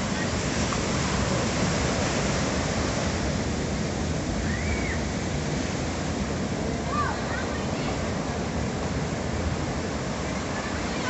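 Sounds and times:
surf breaking over rocks: 0.0s - 5.0s.

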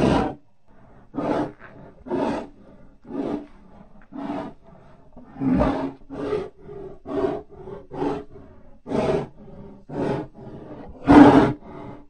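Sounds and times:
creature roaring growls: 0.0s - 0.4s, 1.1s - 3.4s, 5.2s - 12.0s.

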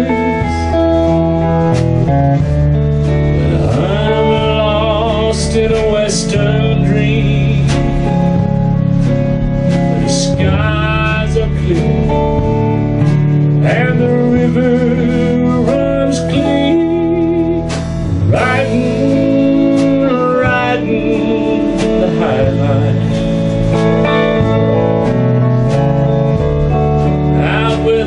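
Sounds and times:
man singing: 0.0s - 1.2s, 3.2s - 8.6s, 9.7s - 24.4s, 27.0s - 28.0s
live country band: 0.0s - 28.0s.

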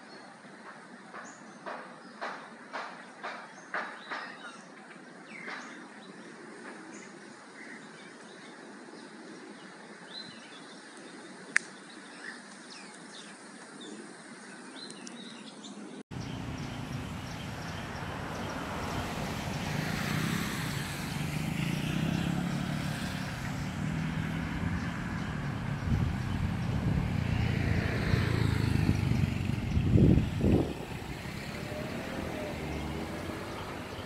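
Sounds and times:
birds chirping: 0.0s - 34.0s
road traffic rumble: 16.1s - 34.0s.

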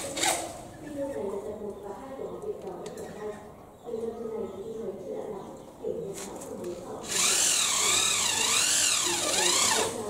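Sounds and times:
electric drill whine: 7.1s - 10.0s.

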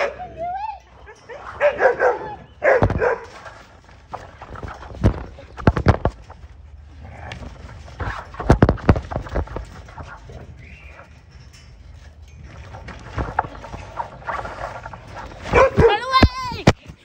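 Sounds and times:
dog bark: 1.6s - 3.3s, 15.5s - 16.0s.

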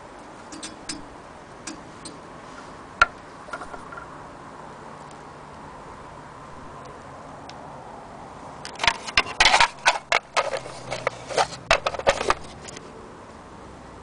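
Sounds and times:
metal bobbins rattling: 8.7s - 12.8s
plastic box clattering: 8.8s - 12.8s.

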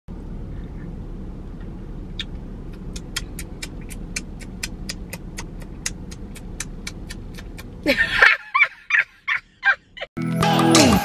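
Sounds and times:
car idling: 0.1s - 10.0s
regular ticking: 2.2s - 7.8s.

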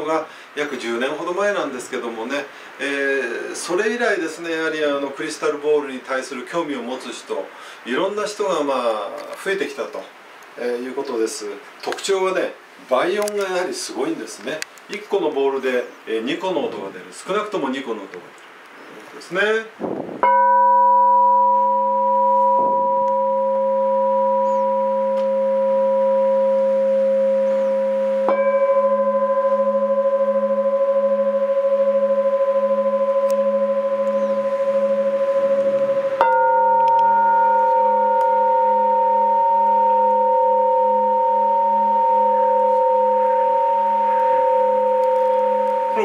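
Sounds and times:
crystal singing bowls ringing: 20.2s - 46.0s.

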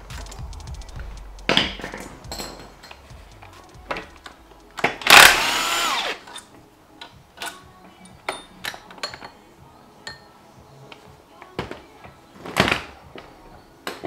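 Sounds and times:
cordless drill motor whine: 5.1s - 6.2s.

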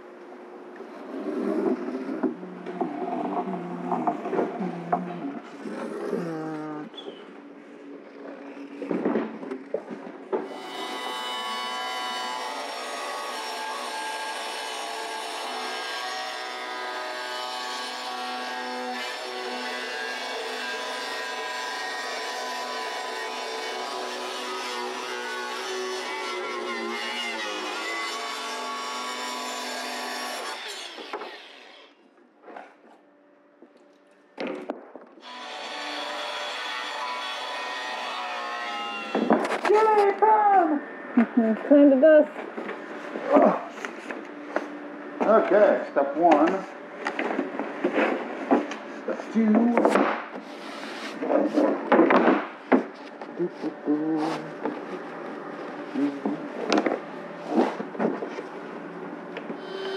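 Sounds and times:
rubbing and scraping: 0.9s - 6.4s, 47.2s - 58.6s
angle grinder whine: 58.7s - 59.9s.

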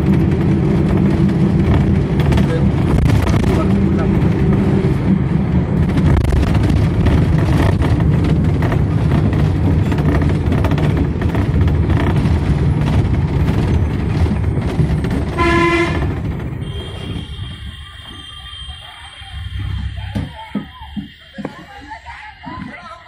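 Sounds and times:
bus engine and road noise: 0.0s - 23.0s
horn toot: 15.3s - 19.9s.

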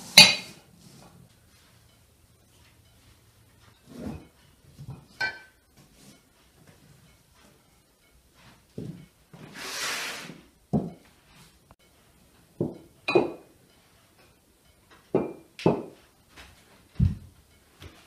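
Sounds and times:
glasses and plates clinking: 3.5s - 6.2s, 12.6s - 13.5s.

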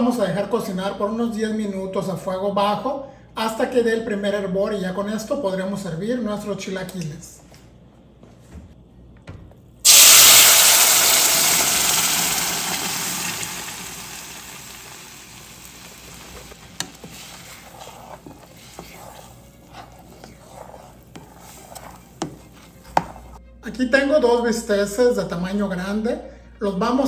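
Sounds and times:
sauce sizzling in hot oil: 9.8s - 22.5s
wooden spoon stirring against pot: 15.3s - 23.5s.

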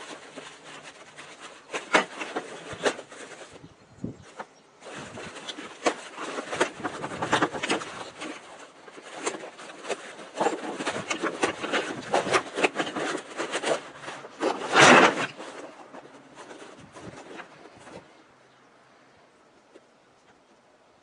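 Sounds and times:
nylon webbing rustling and scraping: 0.0s - 18.4s
scraping rush: 4.3s - 18.2s.

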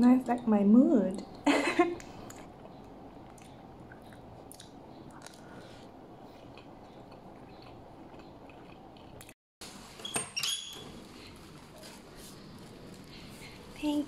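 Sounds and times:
person chewing: 2.0s - 9.4s.

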